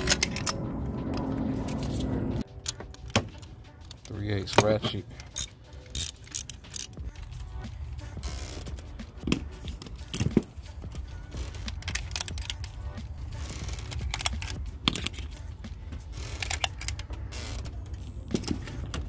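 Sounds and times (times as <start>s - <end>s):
metal clicks and clinks: 3.9s - 7.1s.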